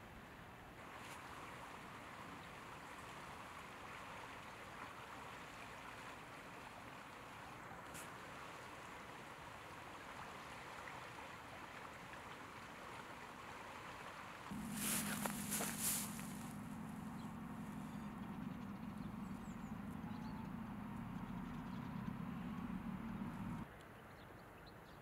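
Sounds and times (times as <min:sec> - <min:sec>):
river water rushing: 0:00.8 - 0:23.6
low hum: 0:14.5 - 0:23.6.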